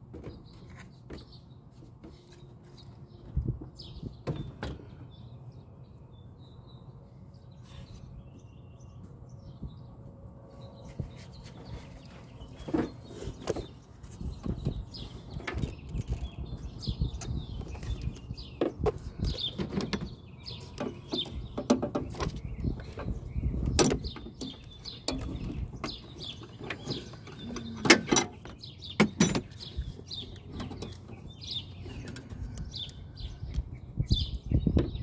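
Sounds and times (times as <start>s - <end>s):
small birds chirping: 0.0s - 35.0s
hand tools clicking and knocking: 23.8s - 31.2s.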